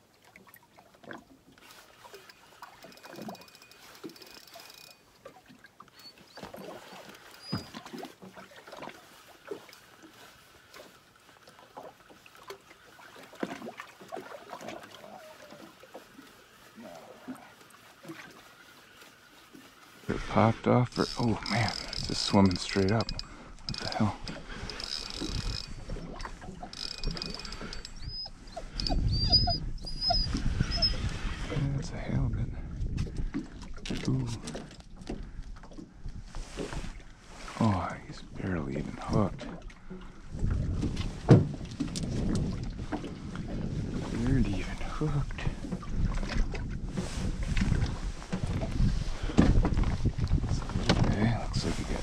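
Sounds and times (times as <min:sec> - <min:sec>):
waves lapping against boat hull: 0:00.0 - 0:52.0
fishing reel cranking: 0:01.6 - 0:05.1, 0:20.9 - 0:29.1
knocks and clicks: 0:21.1 - 0:25.8
dog whining and whimpering: 0:28.0 - 0:31.0.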